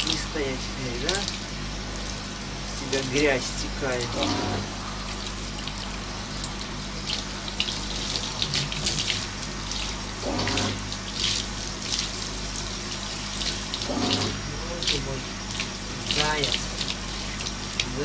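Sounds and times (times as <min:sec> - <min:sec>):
shower head spraying water: 0:00.0 - 0:18.0
water splashing into tub: 0:00.0 - 0:18.0.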